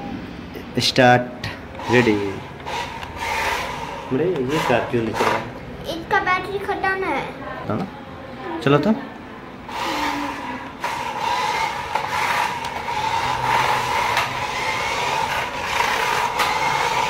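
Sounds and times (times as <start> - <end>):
toy car motor whining: 1.8 - 5.5, 9.7 - 17.0.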